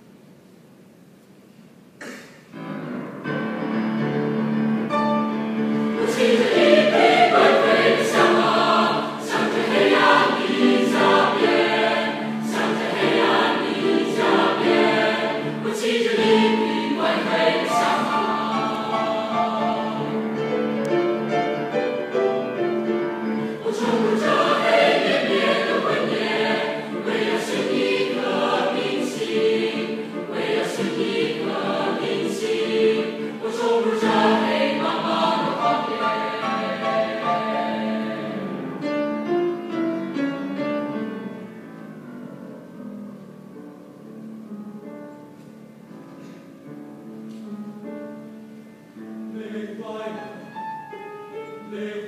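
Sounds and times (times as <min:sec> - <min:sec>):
mixed choir singing: 0:05.5 - 0:39.1, 0:49.1 - 0:50.7, 0:51.4 - 0:52.0.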